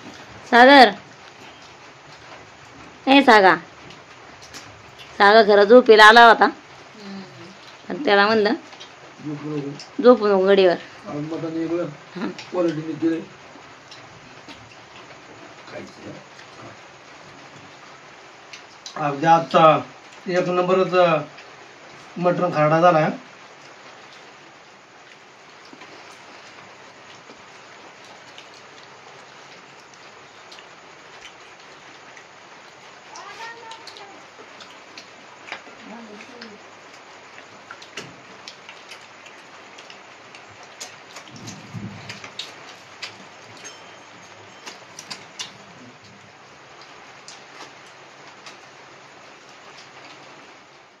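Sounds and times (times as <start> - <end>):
faint drip-like ticks: 0.0 - 3.0, 3.6 - 5.3, 6.6 - 10.2, 10.8 - 20.5, 23.3 - 50.8
light rain falling: 0.0 - 51.0.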